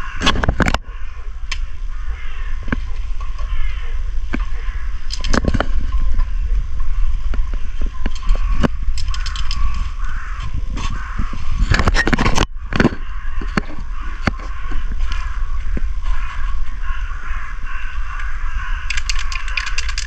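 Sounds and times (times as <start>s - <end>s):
wind on microphone: 0.0s - 20.0s
sharp clicks and knocks: 7.3s - 9.9s, 18.9s - 20.0s.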